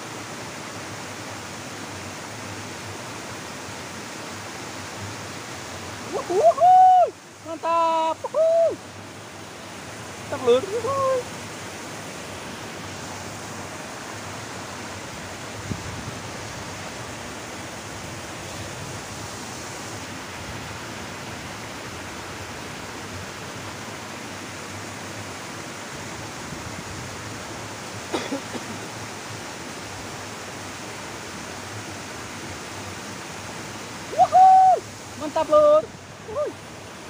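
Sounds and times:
water rushing from cascade: 0:00.0 - 0:37.0
sliding voice-like whoop: 0:06.1 - 0:07.2, 0:34.1 - 0:34.8.

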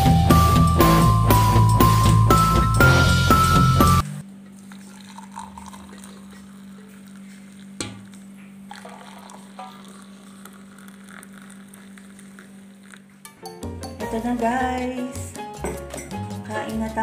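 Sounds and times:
water poured into ceramic mug: 0:04.6 - 0:13.1.

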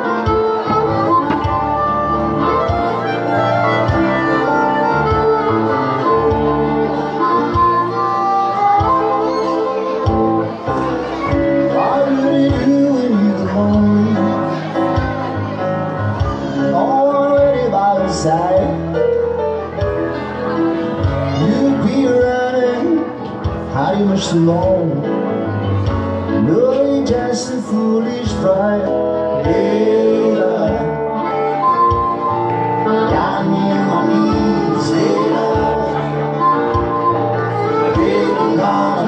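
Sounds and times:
electric guitar: 0:00.0 - 0:39.0
keyboard: 0:00.0 - 0:39.0
man singing: 0:11.0 - 0:15.6, 0:16.2 - 0:19.2, 0:21.1 - 0:25.4, 0:26.2 - 0:32.1, 0:32.7 - 0:39.0.

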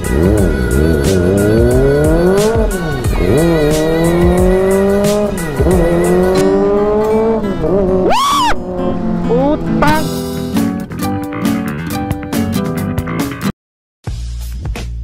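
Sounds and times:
motorcycle engine accelerating: 0:00.0 - 0:10.9.

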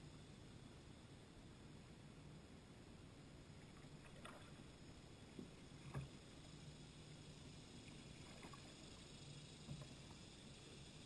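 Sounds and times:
paddle splashes and drips: 0:03.5 - 0:06.4, 0:07.8 - 0:10.4.

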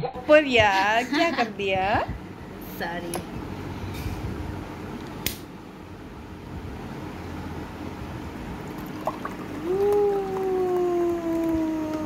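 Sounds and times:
steady low hum: 0:00.0 - 0:12.0
sharp click: 0:05.2 - 0:05.5
drink pouring into glass: 0:08.6 - 0:10.4.

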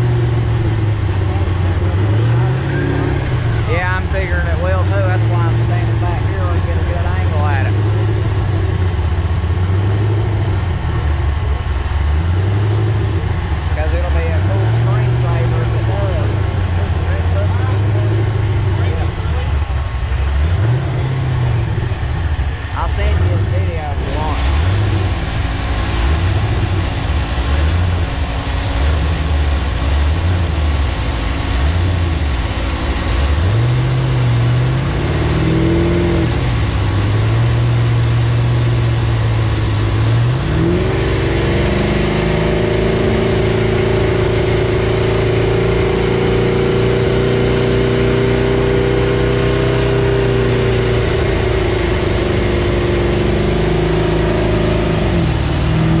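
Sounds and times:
car engine revving on dyno: 0:00.0 - 0:56.0.

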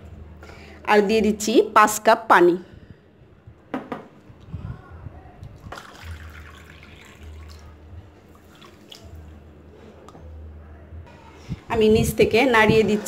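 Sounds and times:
water splashing and trickling: 0:05.6 - 0:09.3.

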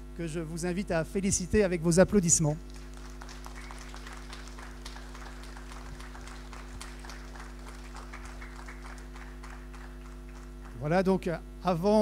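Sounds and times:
steady low hum: 0:00.0 - 0:12.0
audience applauding: 0:02.7 - 0:10.9.

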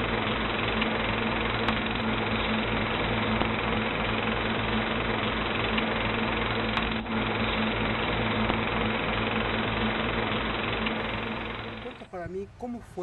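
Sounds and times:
steady mechanical hum: 0:00.0 - 0:13.0.

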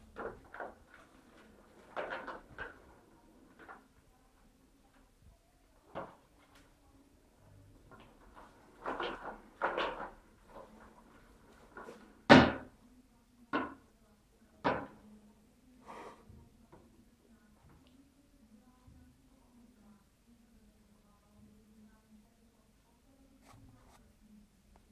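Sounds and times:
plastic ball knocking and clattering: 0:07.9 - 0:10.8.

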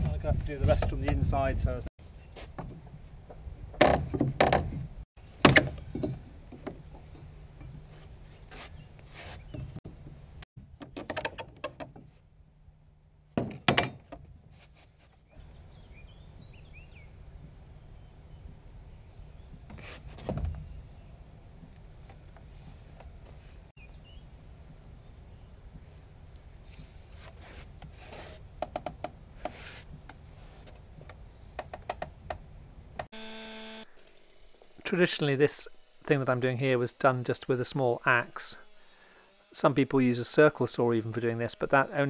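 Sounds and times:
loud wooden knocks: 0:03.8 - 0:06.8
tool scraping along wood: 0:33.1 - 0:42.0.

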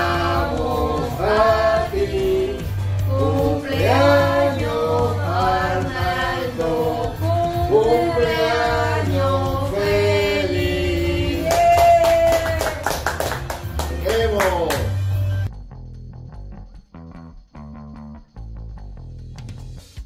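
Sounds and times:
people singing together: 0:00.0 - 0:11.8
people clapping: 0:11.3 - 0:15.2.

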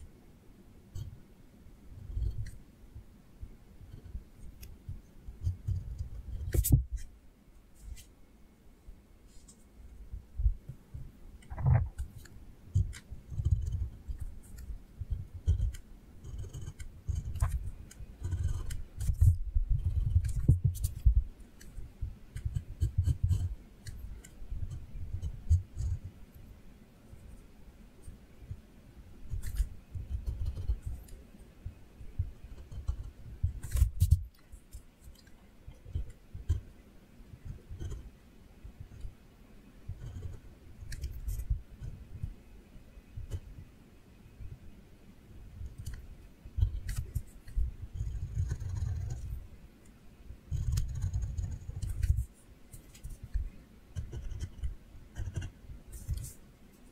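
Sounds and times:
pen scratching on paper: 0:02.0 - 0:02.6, 0:05.4 - 0:07.1, 0:11.5 - 0:26.1, 0:29.3 - 0:31.2, 0:32.2 - 0:36.7, 0:37.5 - 0:38.1, 0:39.9 - 0:42.1, 0:46.6 - 0:49.4, 0:50.5 - 0:56.4.

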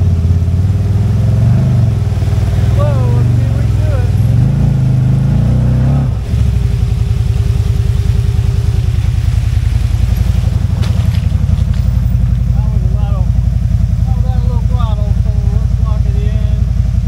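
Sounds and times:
vehicle engine revving: 0:00.0 - 0:17.0.

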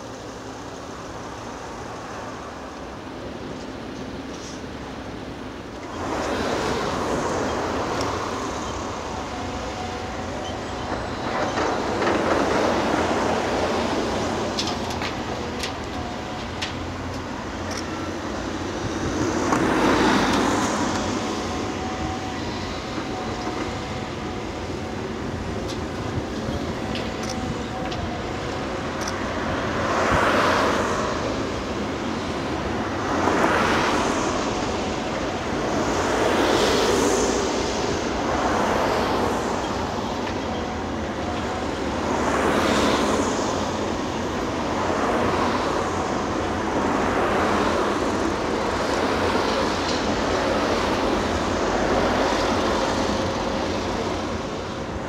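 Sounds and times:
road traffic passing: 0:00.0 - 0:55.0.

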